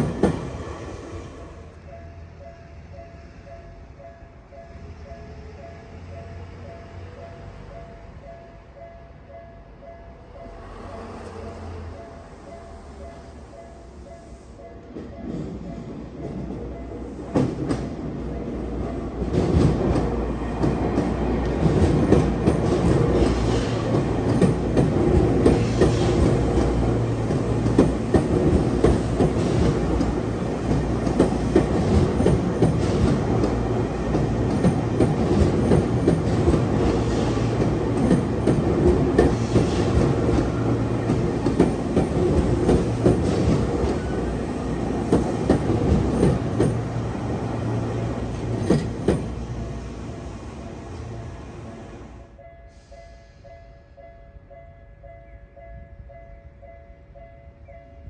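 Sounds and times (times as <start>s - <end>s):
electric train passing: 0.0s - 58.0s
train wheels clacking over rail joints: 19.2s - 47.0s, 48.4s - 49.4s.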